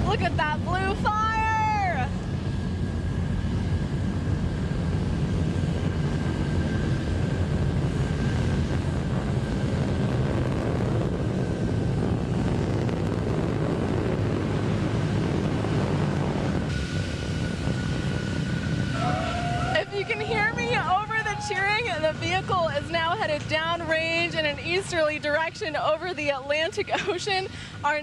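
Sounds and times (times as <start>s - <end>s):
rocket engine rumble: 0.0s - 28.0s.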